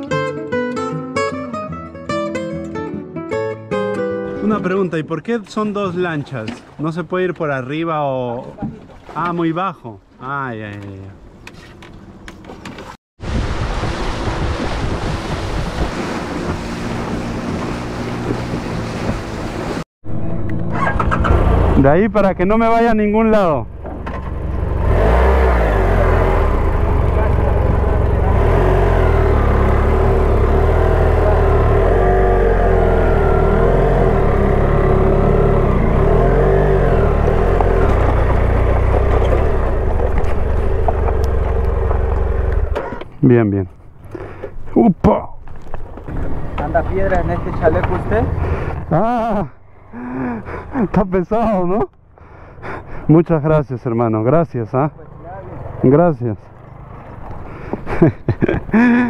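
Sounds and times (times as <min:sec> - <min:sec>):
water rushing: 0:13.2 - 0:19.8, 0:24.8 - 0:42.8
wind buffeting microphone: 0:13.2 - 0:19.8
motorboat engine running: 0:13.2 - 0:22.0, 0:23.6 - 0:43.1, 0:56.5 - 0:58.0.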